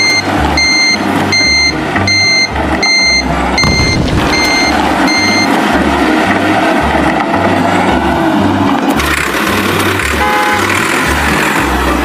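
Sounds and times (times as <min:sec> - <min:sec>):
reversing alarm beeping: 0:00.0 - 0:05.6
low pulsing rumble: 0:00.2 - 0:08.8.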